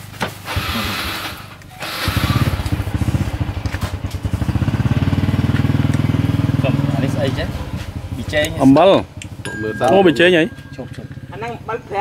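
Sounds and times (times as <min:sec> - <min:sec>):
small engine chugging: 0:00.5 - 0:05.3.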